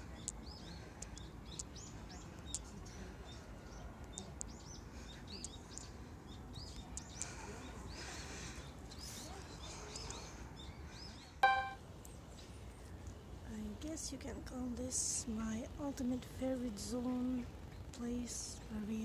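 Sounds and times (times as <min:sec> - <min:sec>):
small birds chirping: 0:00.0 - 0:11.8.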